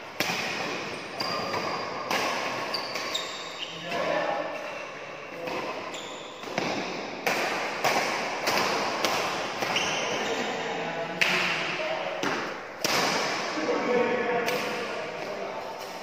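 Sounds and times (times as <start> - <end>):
rackets striking shuttlecock: 0.2 - 4.1, 5.4 - 10.0.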